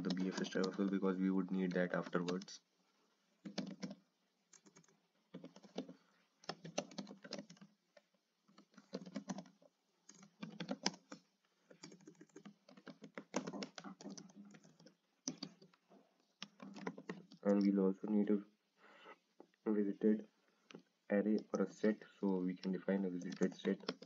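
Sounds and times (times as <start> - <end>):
typing on computer keyboard: 0.0 - 1.0, 1.6 - 2.6, 3.4 - 17.6, 22.6 - 24.0.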